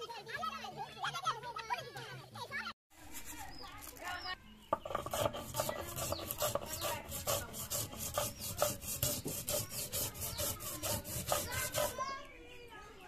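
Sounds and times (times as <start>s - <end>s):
stone roller grinding on stone: 4.7s - 12.0s.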